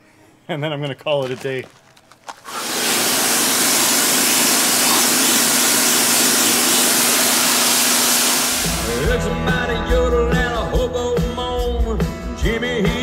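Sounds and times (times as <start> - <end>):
water jet hissing: 2.5 - 9.0.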